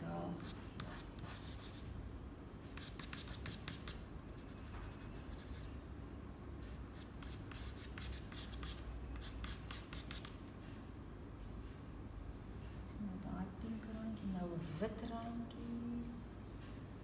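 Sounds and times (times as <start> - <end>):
pastel scratching on paper: 0.4 - 1.8, 2.8 - 5.7, 7.0 - 10.4.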